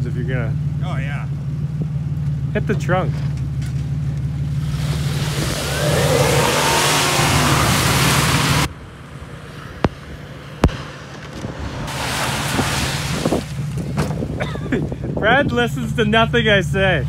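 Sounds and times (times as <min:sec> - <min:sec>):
truck engine revving: 0:00.0 - 0:15.3
wheels spinning in mud: 0:03.6 - 0:08.8, 0:09.6 - 0:14.4.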